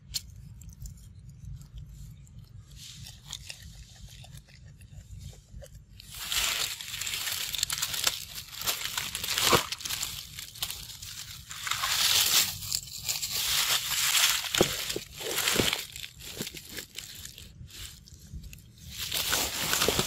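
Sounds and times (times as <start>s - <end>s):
crinkling rustle: 6.0s - 20.0s.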